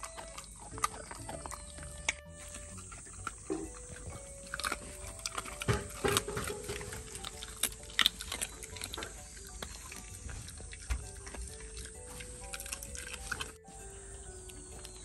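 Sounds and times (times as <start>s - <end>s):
pet chewing raw meat: 0.0s - 15.0s.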